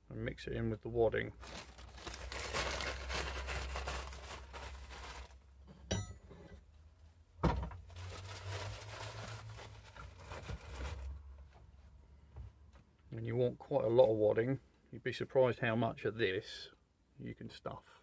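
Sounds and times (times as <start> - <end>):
rustling and crinkling material: 1.3 - 5.4, 7.8 - 11.9.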